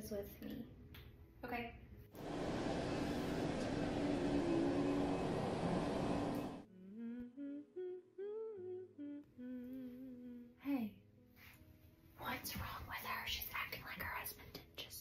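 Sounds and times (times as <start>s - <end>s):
loud steady rushing noise: 2.2s - 6.6s
woman humming a slow tune: 6.7s - 10.8s.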